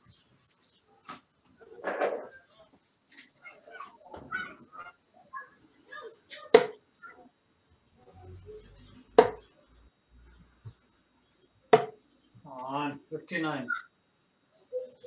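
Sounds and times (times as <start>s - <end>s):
darts thudding into dartboard: 6.5s - 6.8s, 9.2s - 9.5s, 11.7s - 12.0s.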